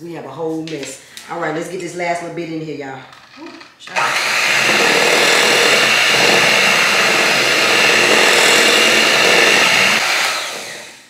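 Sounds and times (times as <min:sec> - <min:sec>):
electric mixer running: 0:03.9 - 0:11.0.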